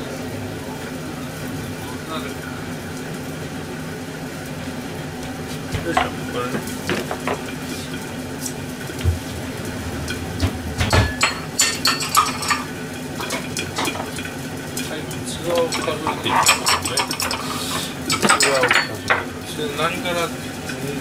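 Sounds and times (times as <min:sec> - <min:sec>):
steady low hum: 0:05.0 - 0:14.8.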